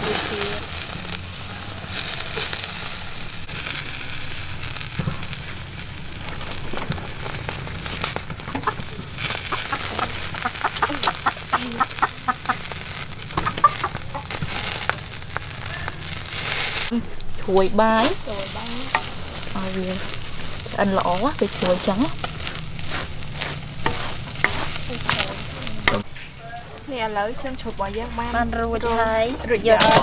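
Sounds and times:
hiss of open fire: 0.0 - 30.0
chickens clucking: 6.5 - 16.6.

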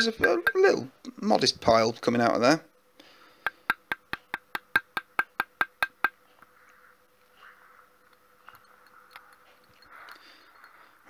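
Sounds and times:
sharp knocks on metal pipe: 0.0 - 0.8.

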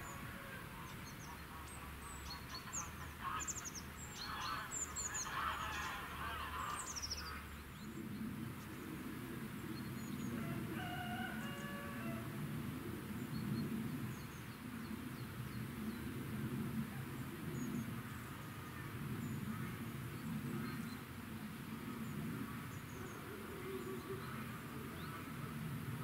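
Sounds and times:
small birds chirping: 0.0 - 12.2.

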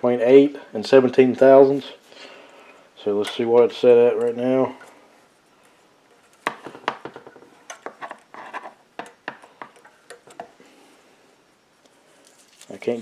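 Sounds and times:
metal gauge clicking and scraping: 3.0 - 5.0, 7.6 - 10.6.

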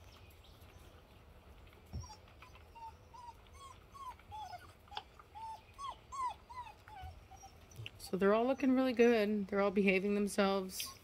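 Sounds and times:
puppy whimpering: 1.9 - 8.9, 10.8 - 11.0.

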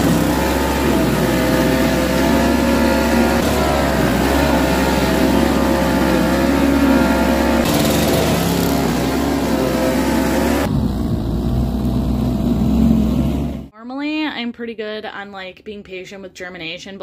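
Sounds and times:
snowblower engine running: 0.0 - 13.7.

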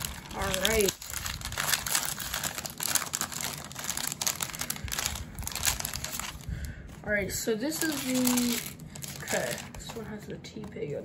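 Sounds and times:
plastic wrapper crinkling: 0.0 - 10.1.

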